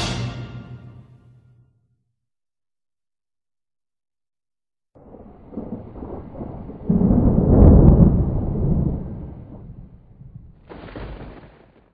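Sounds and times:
thunder rumble: 5.0 - 11.9.

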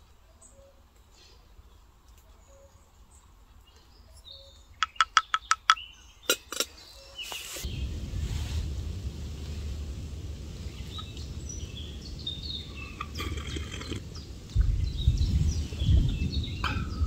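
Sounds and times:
faint bird chirps: 0.1 - 7.9
wooden spoon tapping wooden cup: 4.8 - 6.6
rustling: 6.3 - 14.6.

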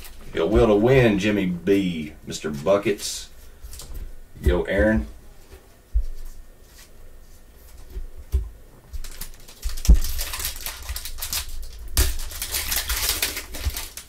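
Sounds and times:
foil wrapper crinkling and ripping: 8.9 - 14.0.

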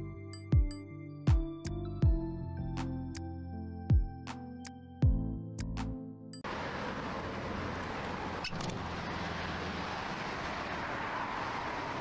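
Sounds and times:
roadside traffic noise: 6.4 - 12.0.

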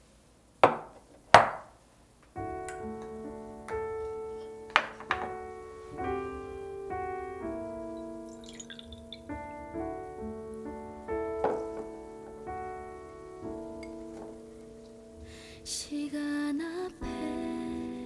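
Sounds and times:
soft piano music: 2.3 - 18.0
dishes knocking on wooden table: 4.8 - 5.4, 11.4 - 11.9.

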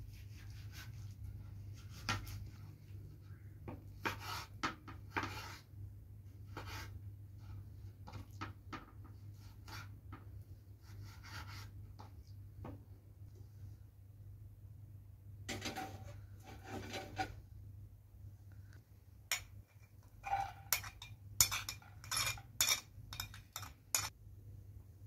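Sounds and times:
knife tapping and scraping on board: 3.7 - 5.6, 20.4 - 24.1.

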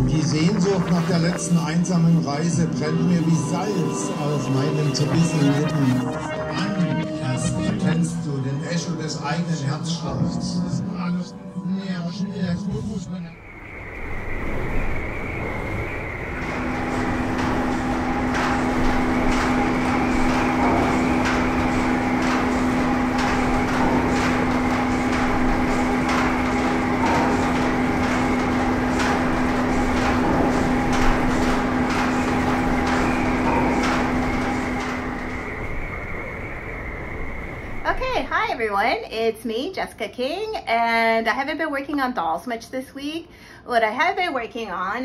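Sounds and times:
steady mechanical hum: 0.0 - 45.0
sharp clicks and knocks: 13.6 - 38.2.

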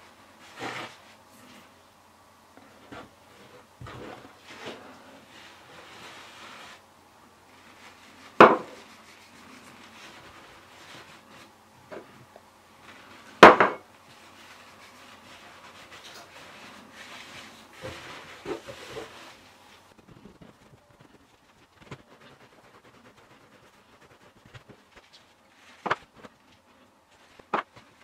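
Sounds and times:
cloth rustling: 14.1 - 28.0.

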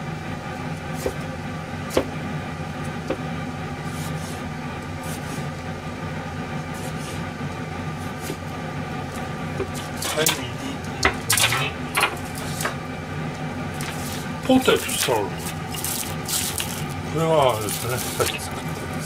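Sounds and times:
mechanical hum: 0.0 - 19.0
cleaver knocking on cutting board: 1.9 - 2.1, 3.0 - 3.2.

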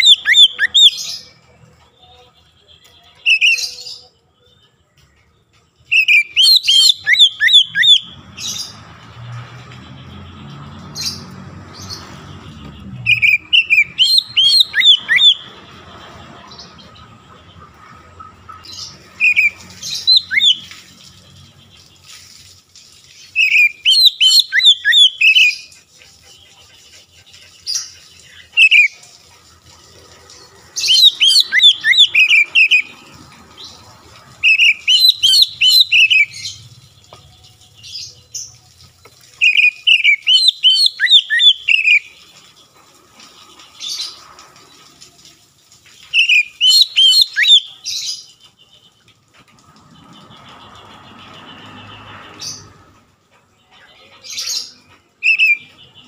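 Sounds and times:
bird singing whistled notes: 0.0 - 1.4, 2.1 - 4.1, 5.8 - 8.8, 12.6 - 15.4, 18.8 - 20.8, 23.2 - 25.8, 30.8 - 32.9, 34.4 - 36.6, 39.4 - 42.1, 46.1 - 48.2, 55.2 - 56.0.

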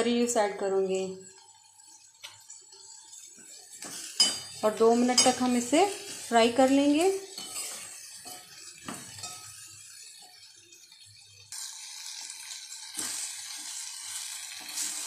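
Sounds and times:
onions sizzling in oil: 0.0 - 15.0
metal spoon scraping pot: 3.1 - 10.3.

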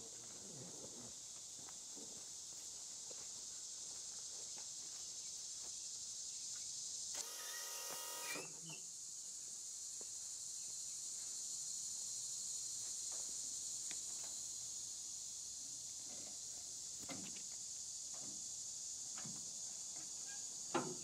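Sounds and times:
insects hissing: 0.0 - 21.0
small electric motor whining: 7.2 - 8.7
faint ticks: 13.8 - 14.4.

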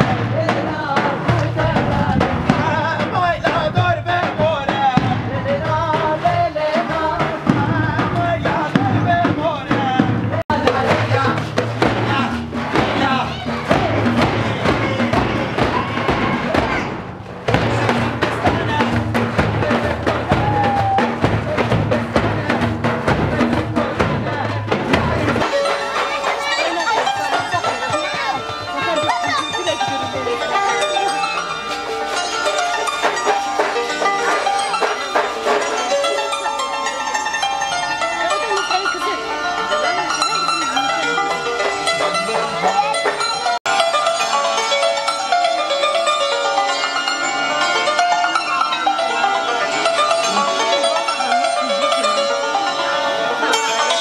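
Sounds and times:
voices singing folk song: 0.0 - 16.9, 17.5 - 43.9
bass drum beaten steadily: 0.0 - 25.6
hand percussion: 0.0 - 54.0.

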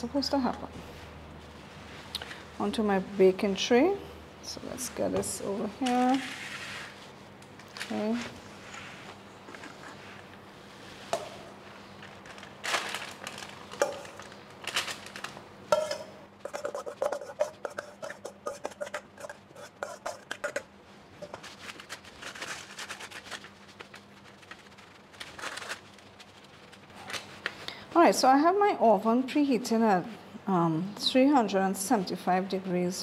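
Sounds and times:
soft scraping on paper: 6.0 - 7.2, 7.9 - 12.4
metal spoon scraping steel bowl: 15.8 - 20.7.

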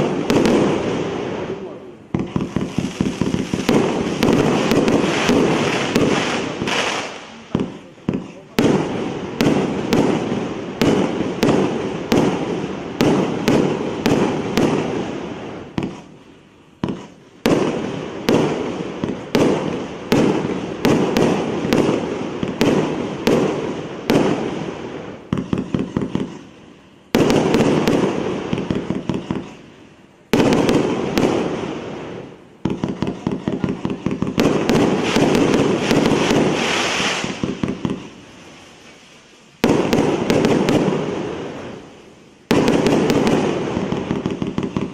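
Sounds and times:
firework cake firing shots: 0.0 - 16.1, 16.8 - 26.5, 27.1 - 29.6, 30.3 - 38.1, 39.6 - 41.9, 42.5 - 44.9.

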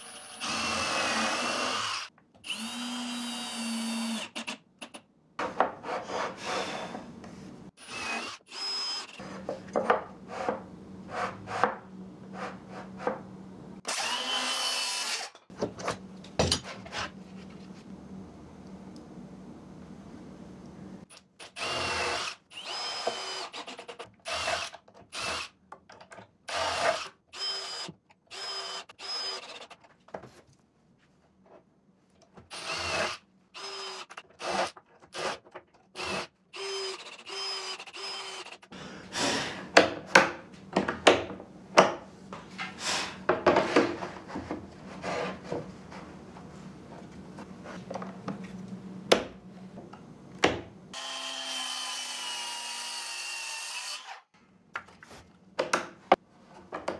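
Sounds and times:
power drill whining: 0.0 - 4.3, 21.6 - 23.7, 32.5 - 34.2, 36.0 - 38.6.

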